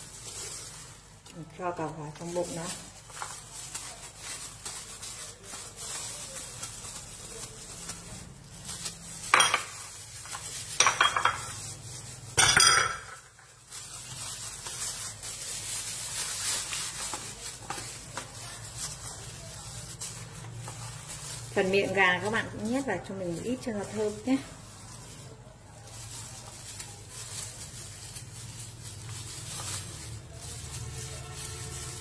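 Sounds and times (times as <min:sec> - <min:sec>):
hands handling raw chicken: 0:00.0 - 0:10.8, 0:13.2 - 0:32.0
metal and crockery clatters: 0:09.2 - 0:10.0, 0:10.7 - 0:11.7, 0:12.3 - 0:13.3.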